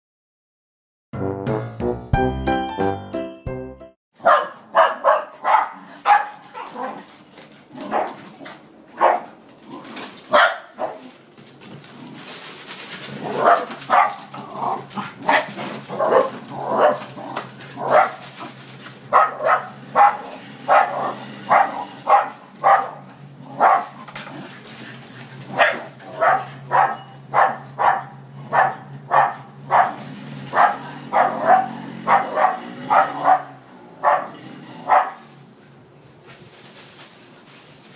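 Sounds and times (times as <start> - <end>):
dogs barking sharply: 4.2 - 7.0, 7.8 - 9.4, 10.3 - 11.1, 13.3 - 24.0, 25.5 - 35.3.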